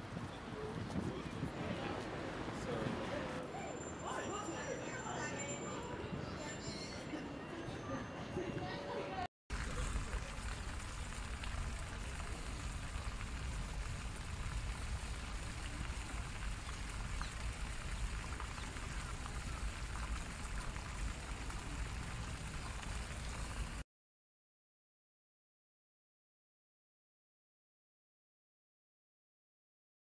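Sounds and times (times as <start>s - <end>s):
fountain water splashing: 9.5s - 23.8s.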